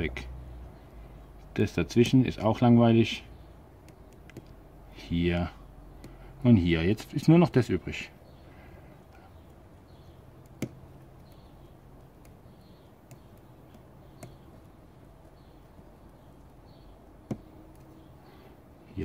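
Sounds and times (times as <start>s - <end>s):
foliage snapping clicks: 3.8s - 4.6s, 10.4s - 14.5s.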